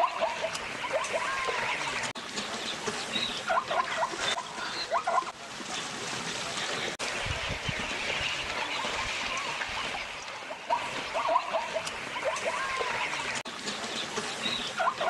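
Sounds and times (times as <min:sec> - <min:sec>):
zebras barking: 0:00.0 - 0:02.1, 0:03.2 - 0:05.4, 0:10.5 - 0:13.4, 0:14.5 - 0:15.0.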